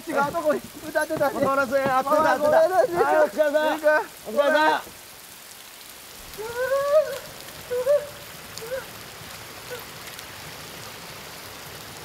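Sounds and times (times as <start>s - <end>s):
steady hiss: 0.0s - 12.0s
person calling: 6.4s - 8.9s.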